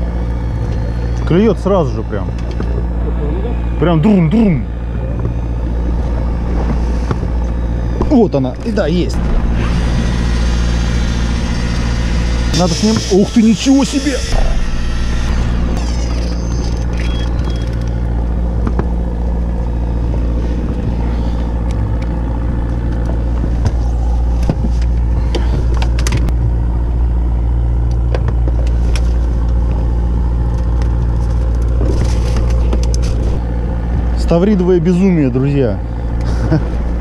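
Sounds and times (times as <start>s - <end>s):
boat engine droning: 0.0s - 37.0s
fishing rods and reels clicking: 9.8s - 18.9s, 30.4s - 33.4s.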